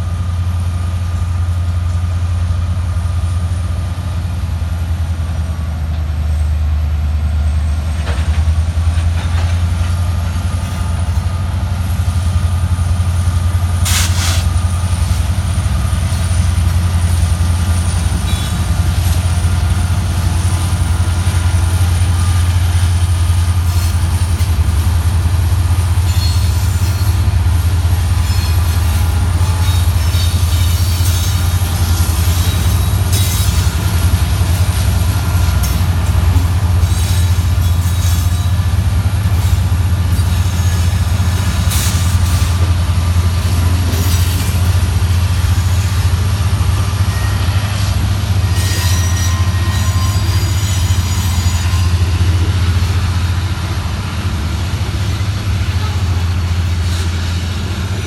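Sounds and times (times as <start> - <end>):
diesel locomotive engine drone: 0.0 - 58.0
faint high squeals: 48.5 - 52.3.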